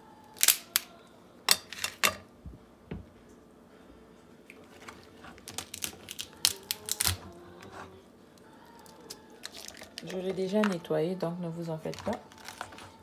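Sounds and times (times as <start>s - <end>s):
lobster shell cracking by hand: 0.3s - 2.0s, 4.5s - 7.3s, 8.4s - 10.8s, 11.8s - 13.0s.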